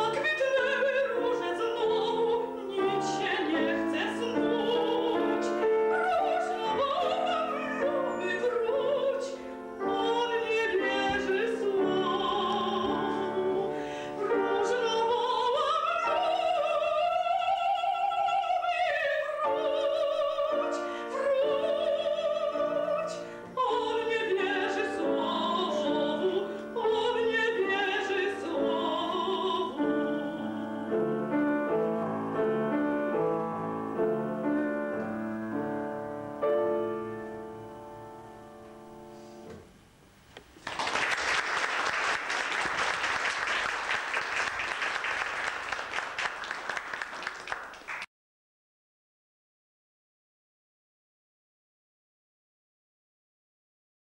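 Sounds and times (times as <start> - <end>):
woman singing operatically: 0.0 - 31.4
piano: 0.0 - 48.1
audience applauding: 40.6 - 48.1.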